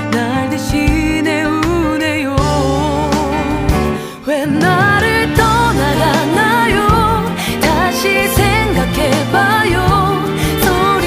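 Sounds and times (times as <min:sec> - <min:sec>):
backing music with bass and beat: 0:03.5 - 0:07.8
person singing with vibrato: 0:04.0 - 0:09.0.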